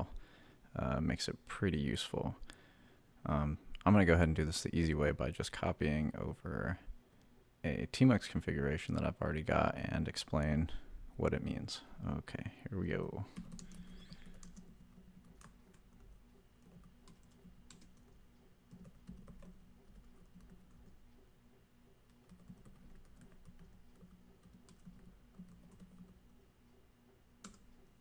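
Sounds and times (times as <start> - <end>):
computer keyboard keystrokes: 13.4 - 21.0, 22.1 - 26.2, 27.4 - 27.7.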